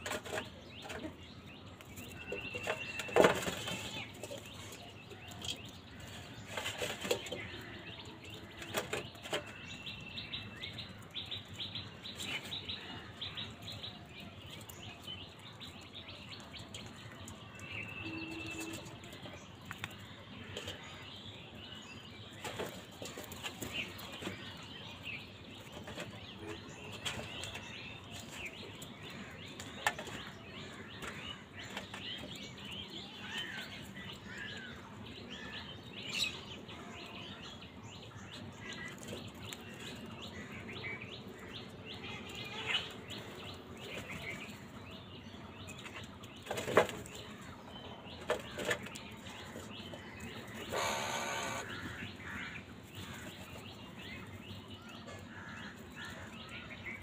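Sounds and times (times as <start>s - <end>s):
birds scuffling and tapping: 0.0s - 57.0s
bird chirps and calls: 38.0s - 57.0s.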